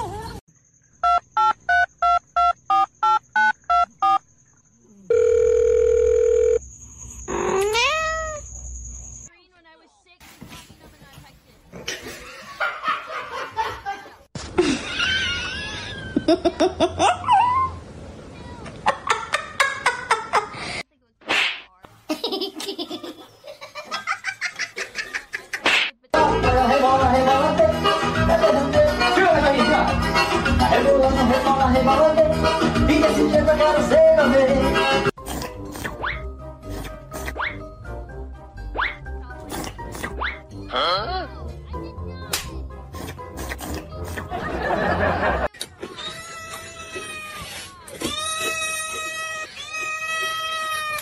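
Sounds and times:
telephone ringing tone: 5.1s - 6.6s
person laughing: 11.9s - 17.4s.

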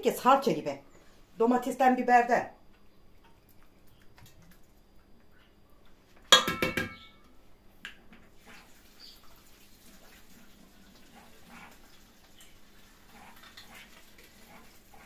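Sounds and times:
utensils clinking against cookware: 6.3s - 7.2s.

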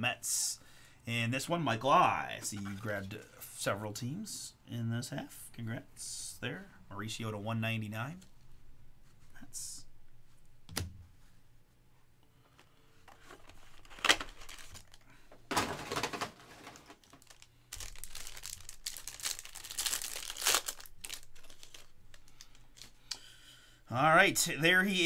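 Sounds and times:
foil pack crinkling and tearing: 13.3s - 23.0s.

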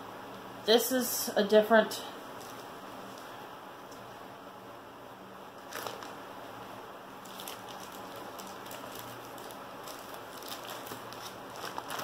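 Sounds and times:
room hiss: 0.0s - 12.0s
cloth rustling: 2.3s - 4.1s, 7.2s - 12.0s
paper crinkling: 2.4s - 3.4s, 5.6s - 6.2s, 7.2s - 12.0s.

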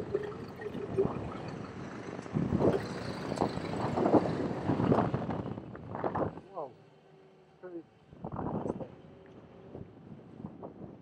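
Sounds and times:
garbage truck engine rumble: 0.0s - 6.0s.

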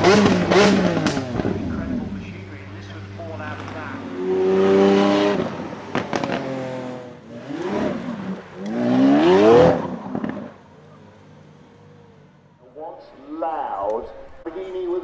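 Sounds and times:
sports car engine revving: 0.0s - 12.2s
exhaust crackles: 0.0s - 15.0s.

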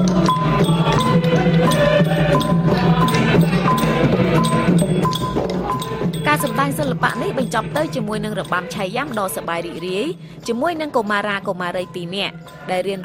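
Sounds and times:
high tapped percussion note: 0.0s - 10.1s.

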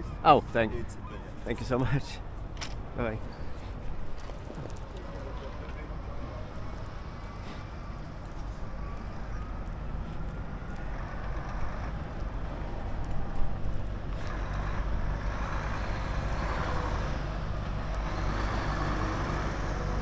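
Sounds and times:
diesel lorry engines humming: 0.0s - 20.0s.

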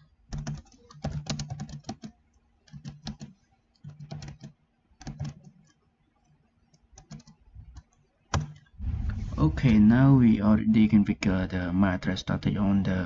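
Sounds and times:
computer keyboard typing: 0.0s - 8.7s.

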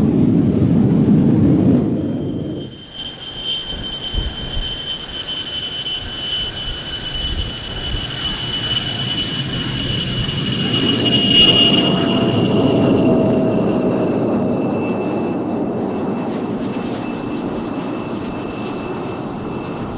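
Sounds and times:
low rumble: 0.0s - 2.9s
jet engine whining: 0.0s - 19.9s.

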